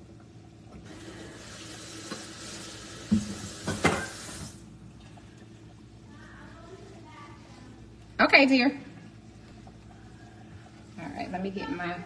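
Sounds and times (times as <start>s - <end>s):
faucet running into sink: 0.7s - 4.6s.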